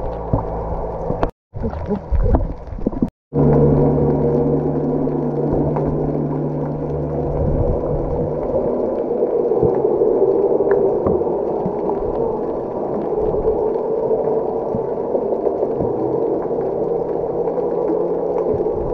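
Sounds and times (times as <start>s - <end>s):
low engine hum: 0.0s - 9.8s
boat rushing noise: 3.4s - 10.4s.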